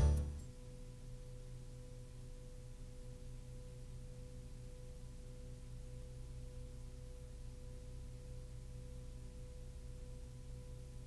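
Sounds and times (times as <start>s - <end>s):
constant hiss: 0.0s - 11.0s
faint electrical hum: 0.0s - 11.0s.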